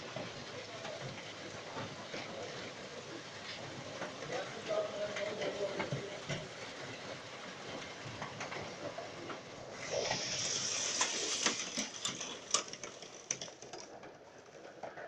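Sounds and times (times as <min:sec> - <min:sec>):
heavy rain hissing: 0:09.7 - 0:12.1.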